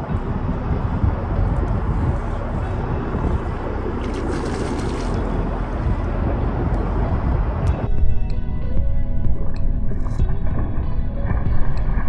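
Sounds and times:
road traffic rumble: 0.0s - 12.0s
lure splashing into water: 4.0s - 5.4s.

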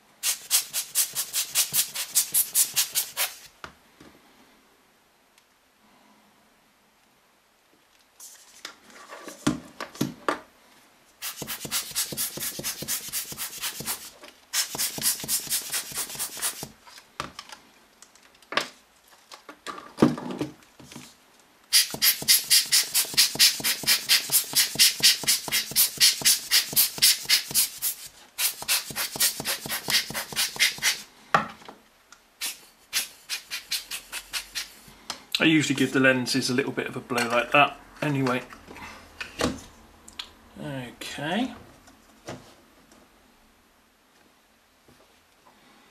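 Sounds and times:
rubber air-blower puffing: 0.2s - 3.5s, 11.2s - 16.8s, 21.7s - 31.1s, 32.4s - 34.9s
handling rustles and knocks: 8.1s - 10.5s, 16.6s - 21.4s, 41.6s - 43.1s.

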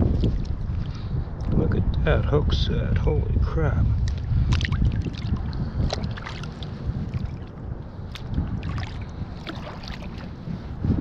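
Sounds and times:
wind rumble on microphone: 0.0s - 11.0s
fish thrashing splashing water: 8.1s - 10.3s.

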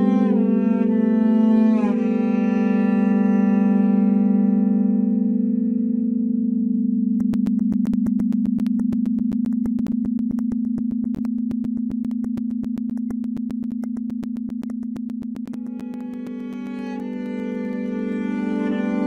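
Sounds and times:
low electronic tone: 6.0s - 19.0s
rapid sharp clicks: 7.2s - 18.5s
string notes: 15.3s - 19.0s.

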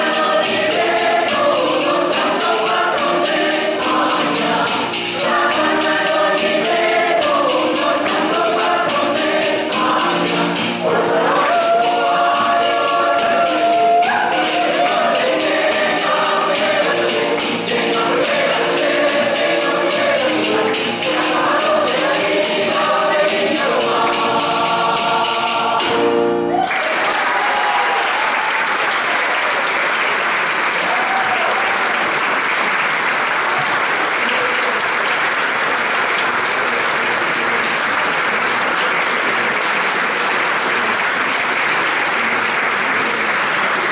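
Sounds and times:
mixed choir singing: 0.0s - 26.5s
audience applause: 26.5s - 43.9s.

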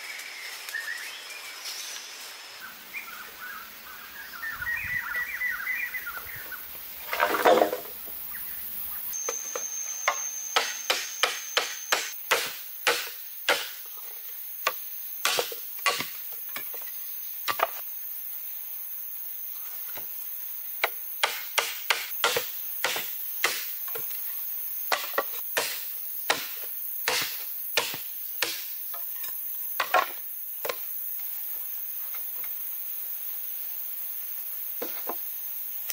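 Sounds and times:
blade chopping bamboo: 10.6s - 13.8s, 15.2s - 16.2s, 21.2s - 23.7s, 24.9s - 28.7s.

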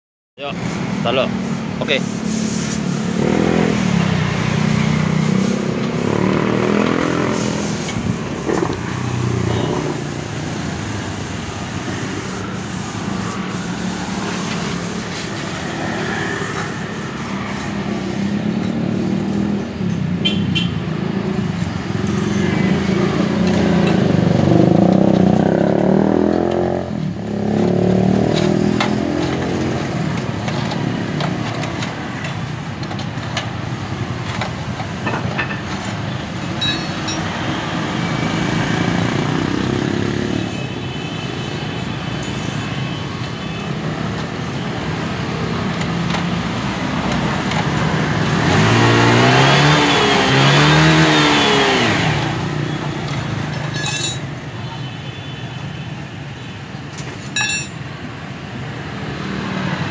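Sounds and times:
vehicle engines passing: 0.4s - 54.8s, 56.2s - 59.9s
engine revving: 3.0s - 10.2s, 22.6s - 29.8s, 47.8s - 52.6s.

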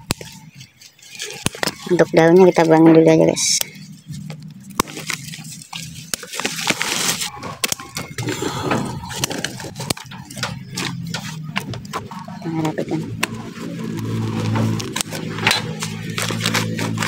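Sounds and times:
scissors snipping leaves: 12.6s - 17.0s.

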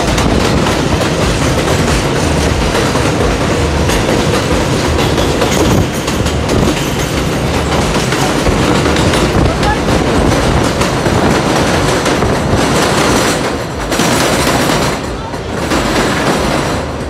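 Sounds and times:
subway train rumbling: 0.0s - 17.0s
wheels clattering over rail joints: 0.0s - 17.0s.

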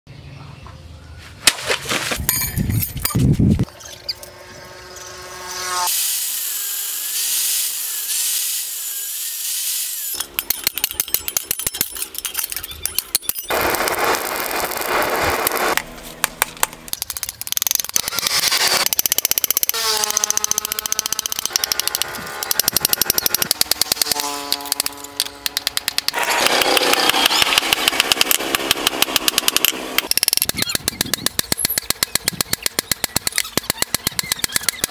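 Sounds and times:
power tool cutting steel: 4.1s - 15.8s, 17.6s - 30.5s.

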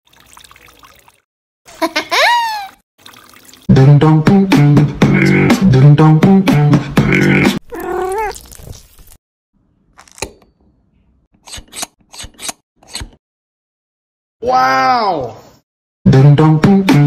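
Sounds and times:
rhythmic vocal music with beat: 3.7s - 7.6s, 16.1s - 17.0s.

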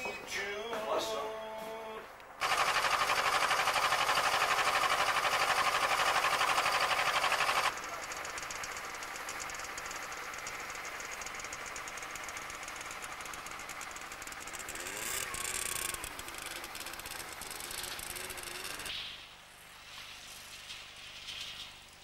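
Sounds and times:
small engine running: 2.4s - 18.9s
snowmobile engine ticking: 2.4s - 18.9s.

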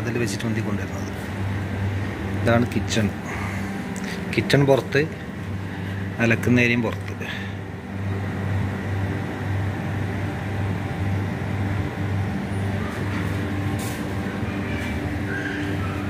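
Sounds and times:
low mechanical hum: 0.0s - 16.0s
machine noise: 0.0s - 16.0s.

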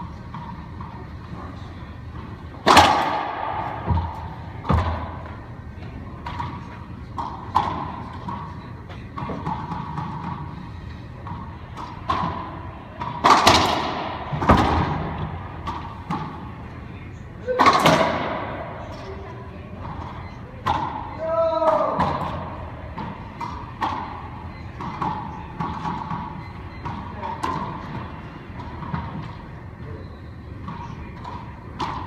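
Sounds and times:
ball hitting court walls: 2.6s - 5.3s, 11.2s - 16.4s, 17.5s - 18.7s
racquet hitting ball: 2.6s - 5.5s, 6.2s - 10.6s, 11.2s - 16.6s, 17.5s - 18.8s, 19.8s - 29.3s, 30.6s - 32.0s.

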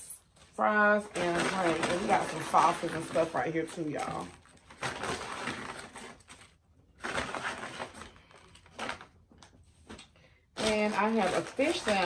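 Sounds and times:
paper bag rustling: 0.4s - 12.0s.

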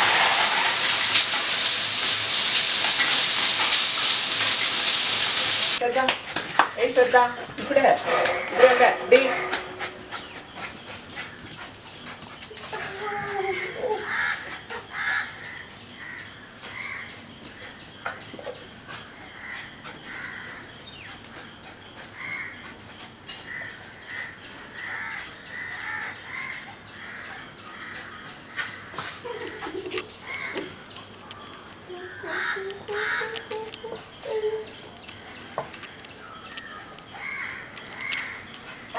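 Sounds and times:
crows cawing: 37.2s - 38.4s.

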